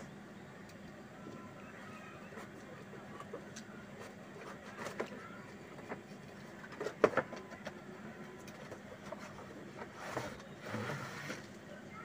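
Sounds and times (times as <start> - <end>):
cardboard box scraping and rustling: 9.2 - 11.5.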